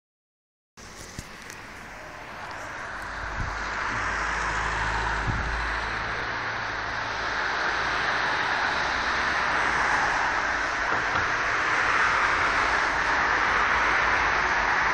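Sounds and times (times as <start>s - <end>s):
storm wind rushing through trees: 0.8s - 14.9s
wind buffeting microphone: 1.0s - 6.2s.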